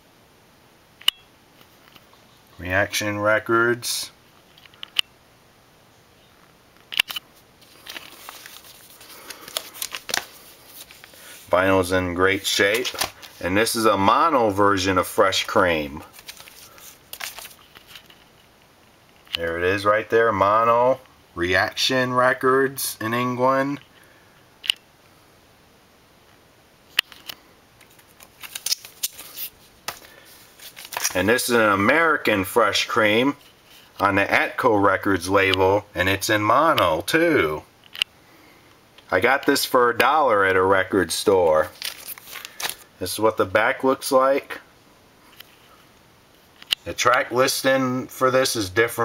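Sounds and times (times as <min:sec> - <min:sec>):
crinkly rustling of plastic sleeve: 0:07.6 - 0:14.6, 0:15.3 - 0:18.5, 0:27.8 - 0:32.1, 0:41.1 - 0:43.1.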